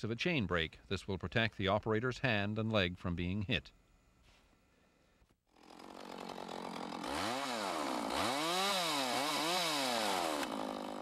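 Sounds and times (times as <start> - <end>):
chainsaw engine revving: 5.5 - 11.0.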